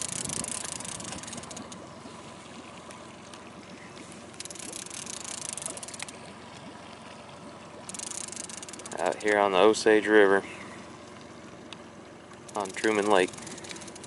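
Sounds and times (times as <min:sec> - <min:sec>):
fishing reel whirring and clicking: 0:00.0 - 0:02.0, 0:04.3 - 0:06.7, 0:07.7 - 0:09.8, 0:12.3 - 0:14.0
water lapping against boat: 0:00.0 - 0:14.0.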